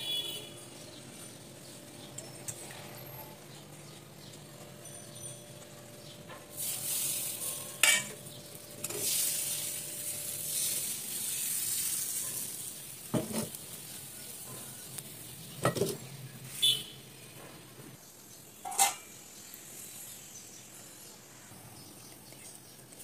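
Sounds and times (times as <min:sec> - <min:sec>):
batter sizzling in a hot pan: 0:06.4 - 0:17.0.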